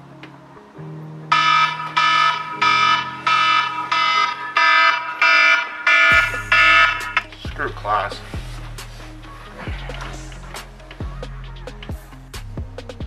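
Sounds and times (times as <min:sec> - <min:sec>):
electronic alarm beeping: 0:01.3 - 0:07.4.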